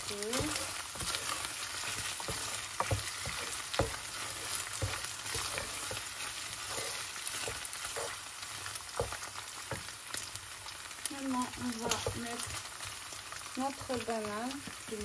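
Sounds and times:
meat sizzling in a saucepan: 0.0 - 15.0
wooden spoon scraping a pan: 0.1 - 10.4, 11.2 - 13.1.

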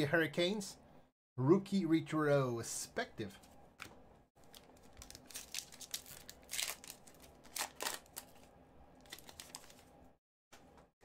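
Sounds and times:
foil wrapper crinkling: 4.4 - 9.9.

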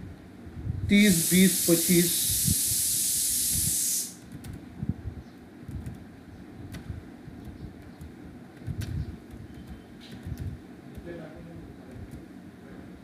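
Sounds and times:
loud steady hiss: 0.9 - 4.2
computer keyboard clicks: 5.7 - 6.0, 6.7 - 11.1.

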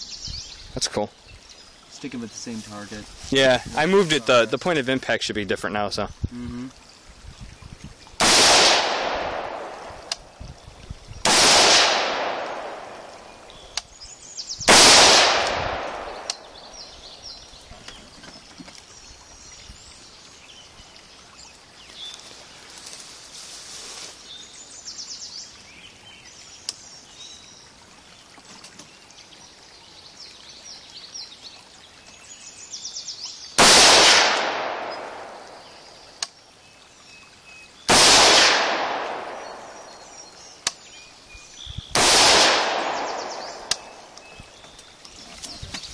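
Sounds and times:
rifle shots: 8.2 - 9.9, 11.3 - 13.0, 14.7 - 16.3, 33.6 - 35.3, 37.9 - 39.4, 42.0 - 43.4
birds chirping: 12.5 - 22.8, 39.1 - 42.0, 42.7 - 45.9.

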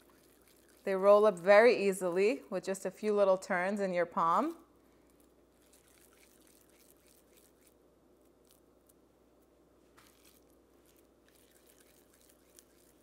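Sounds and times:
squishing of meat mixture: 0.0 - 1.0, 5.1 - 8.7, 9.9 - 13.0
low room hum: 0.0 - 13.0.

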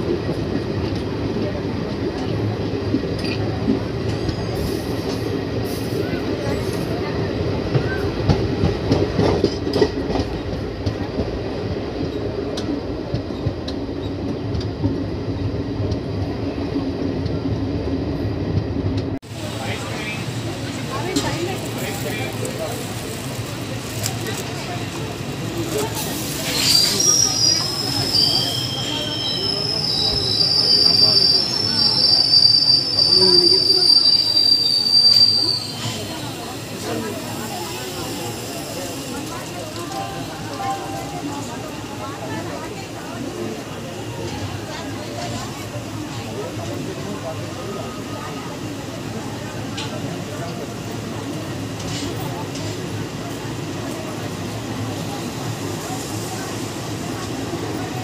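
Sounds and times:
train wheels rumbling on rails: 0.0 - 58.0
train wheels squealing: 26.4 - 39.0.

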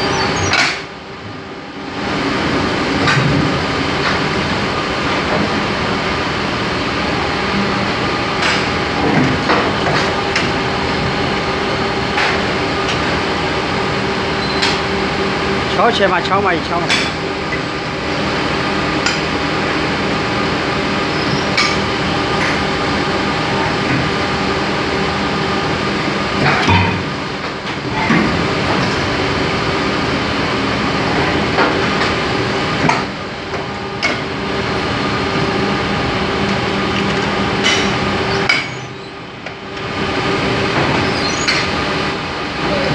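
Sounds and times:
hydraulic pump and motor hum: 0.0 - 42.9
metal clanks and knocks: 26.4 - 27.1.

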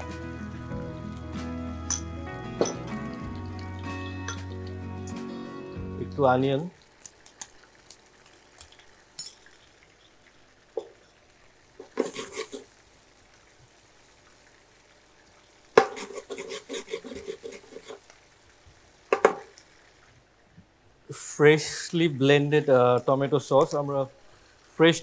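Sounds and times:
spatula scraping frying pan: 11.8 - 12.8, 15.8 - 18.1.

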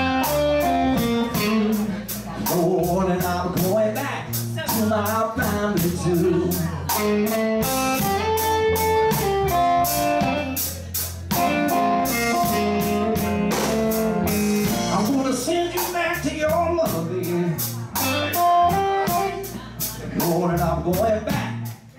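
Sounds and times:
electric guitar lead: 0.0 - 2.6, 4.3 - 15.4, 16.8 - 20.0
drum kit cymbals: 0.0 - 21.8
live blues band: 0.0 - 21.9
walking bass: 0.0 - 21.9.

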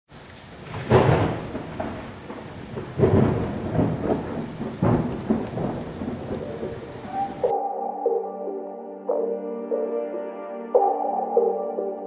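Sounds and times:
steady rain: 0.1 - 7.5
rolls of thunder: 0.6 - 7.5.

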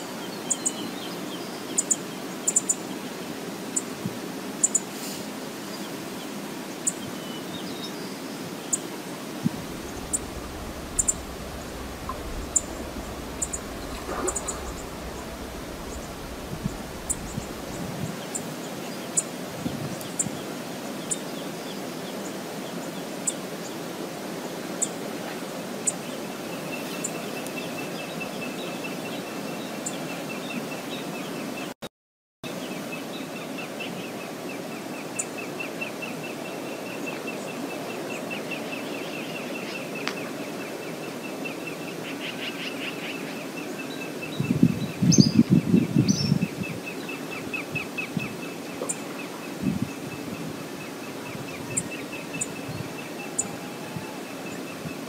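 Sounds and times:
outdoor background rush: 0.0 - 31.7
rapid high pulsing trill: 9.5 - 18.1.

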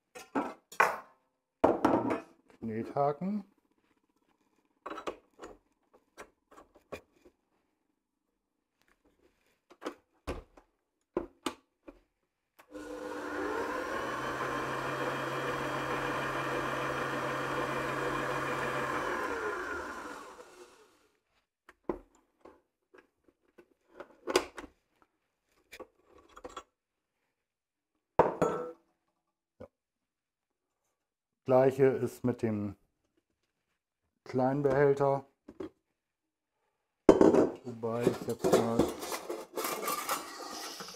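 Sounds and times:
stand mixer motor running: 12.7 - 20.9.

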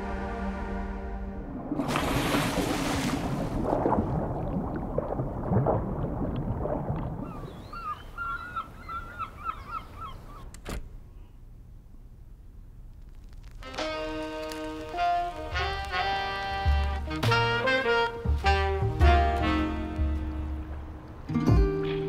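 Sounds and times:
pool water splashing: 1.1 - 9.4.

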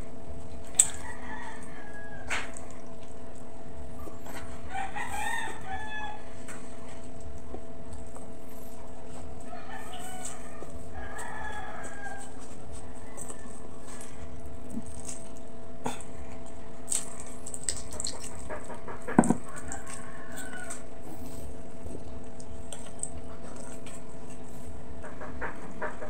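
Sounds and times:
steady hum: 0.0 - 26.0
rooster crowing: 0.8 - 2.6, 4.6 - 6.4, 9.4 - 14.0, 19.3 - 21.0.

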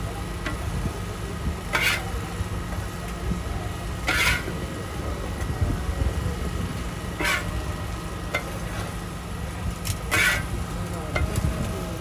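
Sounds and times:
steady low rumble: 0.0 - 12.0
metal spatula scraping griddle: 1.7 - 2.2, 4.0 - 4.6, 7.1 - 7.7, 9.8 - 10.6.

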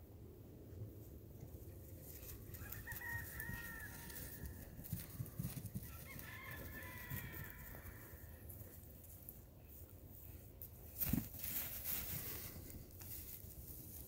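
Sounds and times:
rustling in grass: 1.0 - 14.0
rooster crowing: 2.5 - 5.2, 5.8 - 8.4.

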